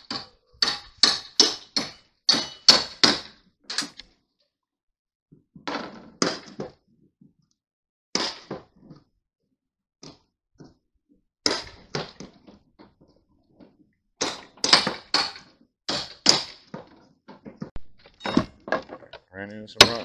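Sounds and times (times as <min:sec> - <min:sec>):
metallic clanks and bangs: 0:00.0 - 0:04.0, 0:17.8 - 0:19.1, 0:19.8 - 0:20.0.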